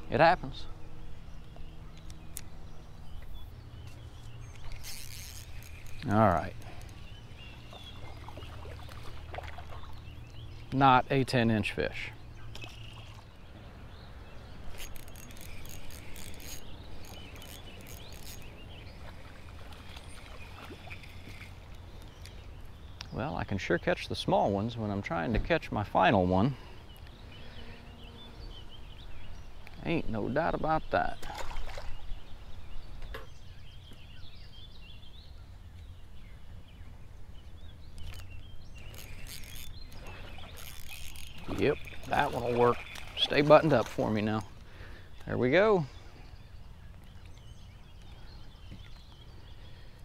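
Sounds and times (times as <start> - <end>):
low outdoor hum: 0.0 - 50.0
small birds chirping: 0.0 - 50.0
fishing reel clicks and taps: 3.9 - 7.0, 14.7 - 18.5, 38.0 - 42.1.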